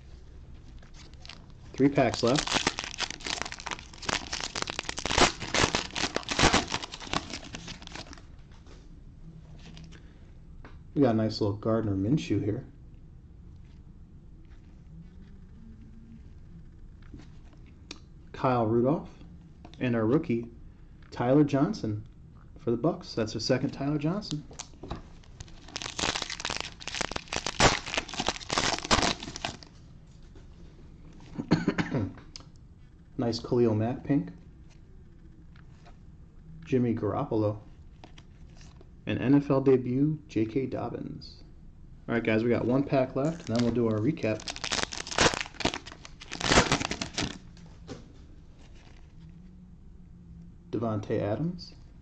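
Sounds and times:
plastic wrapper tearing and crinkling: 0.8 - 8.2, 24.3 - 29.7, 43.2 - 47.4.

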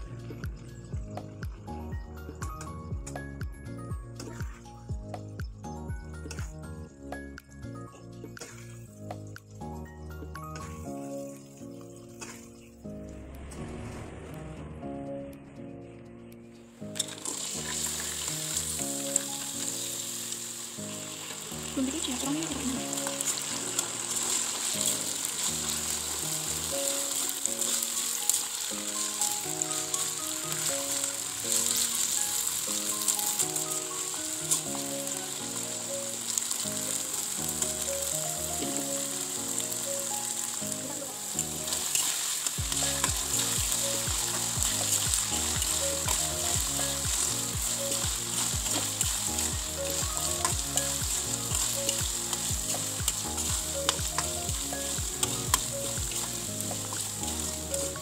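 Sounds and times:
background music with bass beat: 0.0 - 11.7, 42.6 - 58.0
oil sizzling in a wok: 10.6 - 12.5, 16.8 - 58.0.

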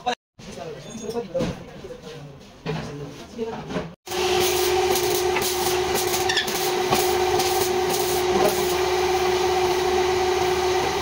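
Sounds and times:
machine droning: 4.1 - 11.0.

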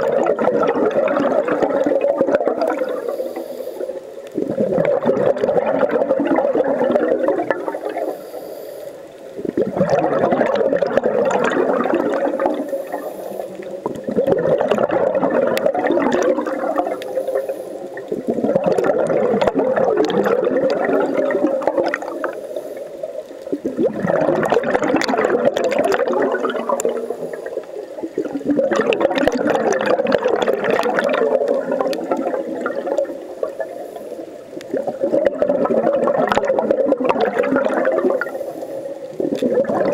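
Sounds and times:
underwater regulator bubbles: 0.0 - 39.9.

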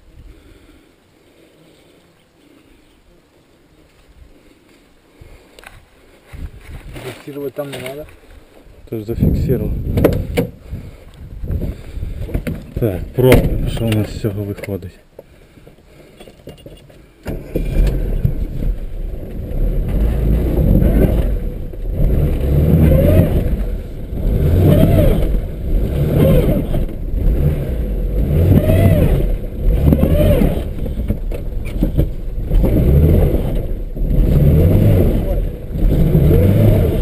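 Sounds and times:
car engine revving hard: 17.5 - 37.0.

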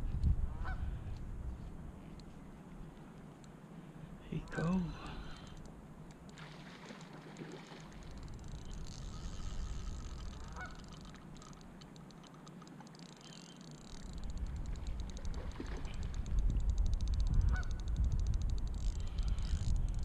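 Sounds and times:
wind rumbling on microphone: 0.0 - 3.4, 7.5 - 11.8, 13.8 - 20.0
geese honking: 10.4 - 11.0.

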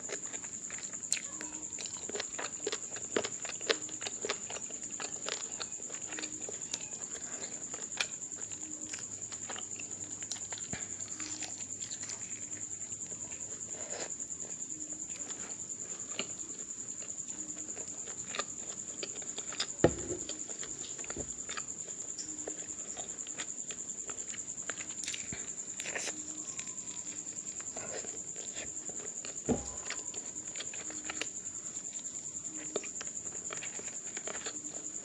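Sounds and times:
wet chewing and lip smacking: 0.1 - 35.0.

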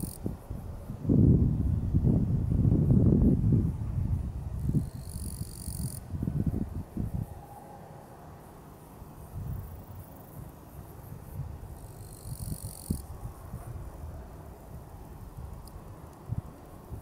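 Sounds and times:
insect trilling: 0.0 - 0.2, 4.6 - 6.0, 11.7 - 13.1
wind buffeting microphone: 0.0 - 7.9, 9.1 - 17.0.

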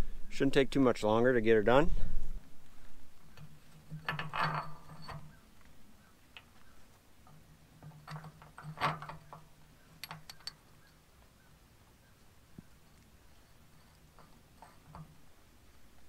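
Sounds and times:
hand tools clicking on bolts: 8.0 - 10.6.

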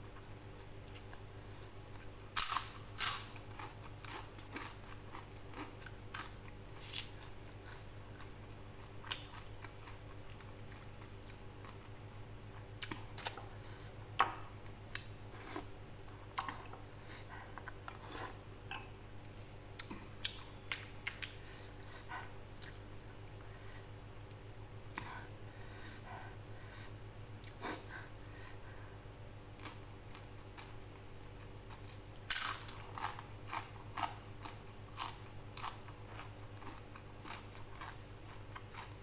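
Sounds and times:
crackers snapping and crunching: 2.0 - 7.4, 31.4 - 39.0.

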